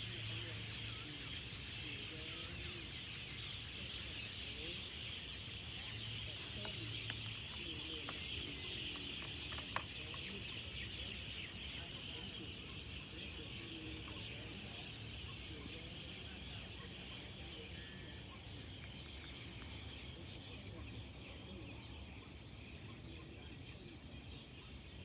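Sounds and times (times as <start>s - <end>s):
high chirping chorus of animals: 0.0s - 25.0s.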